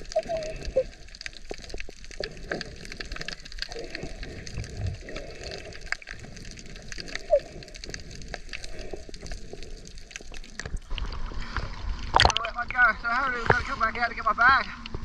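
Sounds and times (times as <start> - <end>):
sharp underwater clicks: 0.0 - 12.7.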